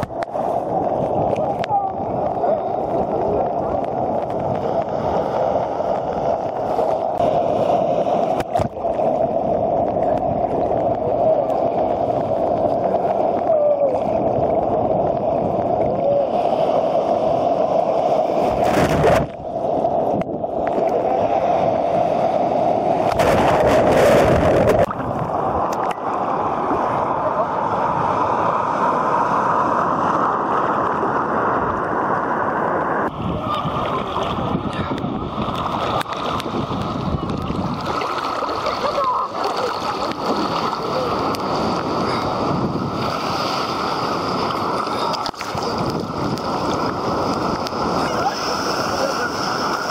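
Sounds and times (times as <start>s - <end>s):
sea waves sloshing: 0.0s - 32.0s, 33.1s - 49.9s
breaking whitewater rushing: 0.0s - 49.9s.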